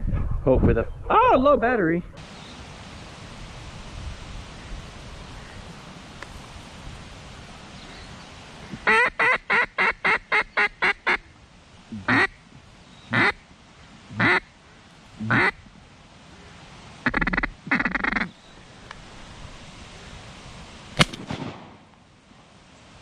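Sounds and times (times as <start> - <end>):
duck call quacks: 8.8 - 11.3, 12.0 - 12.4, 13.1 - 13.4, 14.2 - 14.5, 15.2 - 15.6, 17.0 - 18.3
shotgun shot: 21.0 - 21.9.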